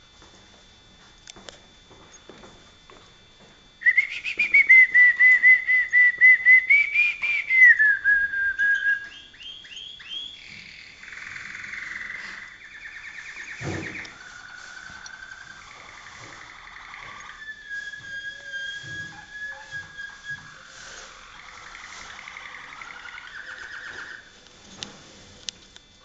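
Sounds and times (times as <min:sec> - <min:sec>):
canary singing: 0:03.8 - 0:24.3.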